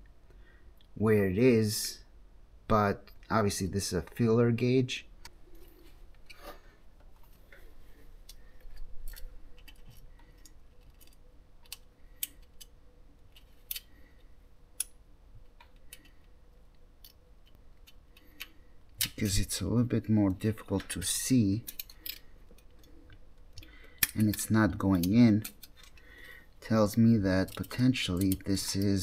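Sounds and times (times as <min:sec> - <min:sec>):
small metallic clicks and scrapes: 0:08.2 - 0:15.0, 0:21.6 - 0:29.0.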